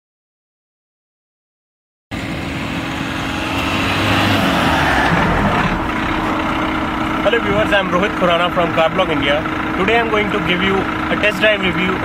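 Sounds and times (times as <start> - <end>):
diesel engine running: 2.1 - 12.0
road and wind noise: 2.1 - 12.0.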